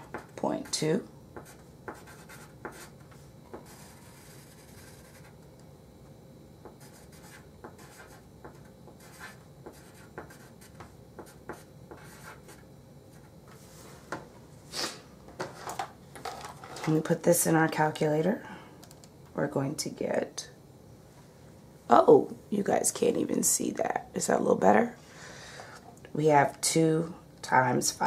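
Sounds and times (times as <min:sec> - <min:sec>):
pen scratching on paper: 0:01.4 - 0:05.3, 0:06.8 - 0:12.6.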